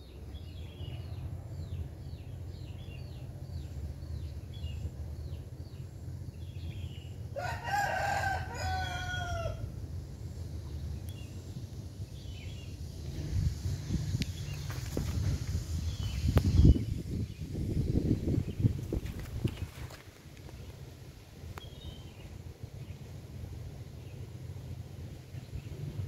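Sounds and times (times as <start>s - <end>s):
rooster crowing: 7.3s - 9.7s
small bird chirping: 10.6s - 20.8s, 21.5s - 23.0s.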